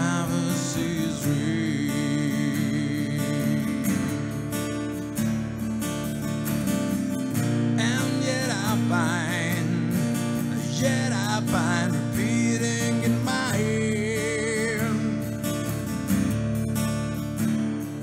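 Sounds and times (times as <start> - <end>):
man singing: 0.0 - 4.3, 7.7 - 15.7
strummed acoustic guitar: 0.0 - 18.0.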